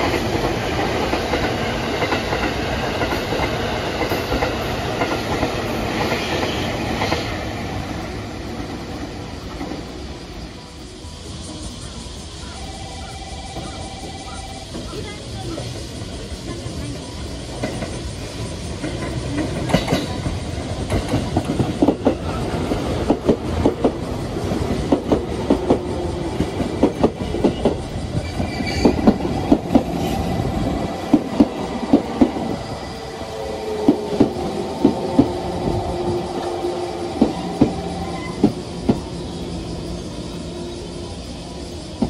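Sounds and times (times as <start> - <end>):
train wheels clacking on rails: 0.0 - 42.0.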